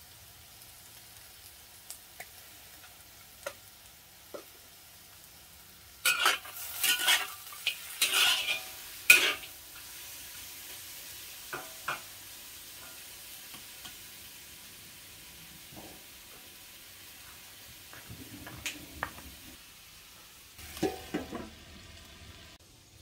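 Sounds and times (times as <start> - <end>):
food sizzling: 0.0 - 23.0
utensil scraping frying pan: 6.0 - 10.2, 11.4 - 14.1, 20.6 - 21.6.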